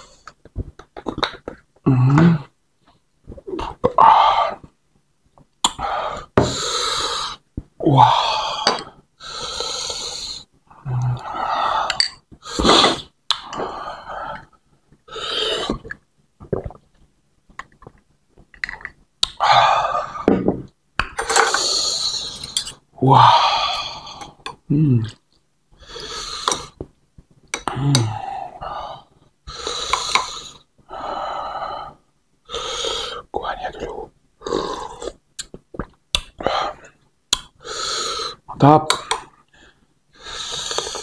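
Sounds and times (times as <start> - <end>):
man slurping soup: 11.9 - 13.8.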